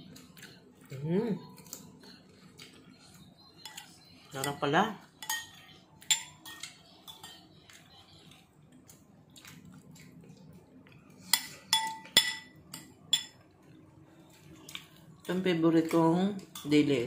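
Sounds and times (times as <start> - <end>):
cutlery clinking on dishes: 3.5 - 7.9, 11.2 - 13.5, 16.4 - 17.0.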